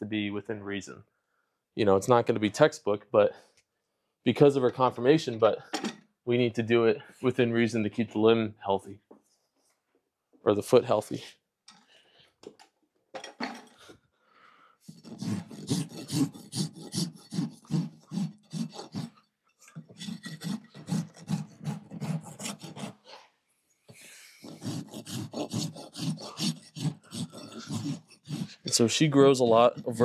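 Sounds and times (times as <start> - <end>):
rasp filing hoof: 14.8 - 23.3, 24.4 - 30.0.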